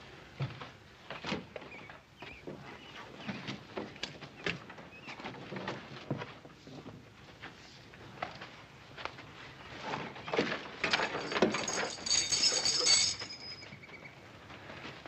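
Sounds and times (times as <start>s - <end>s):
chains clinking: 10.8s - 13.9s.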